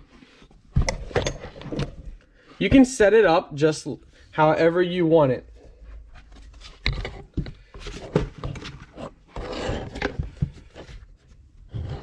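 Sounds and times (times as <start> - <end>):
scraping and rubbing: 5.5 - 12.0.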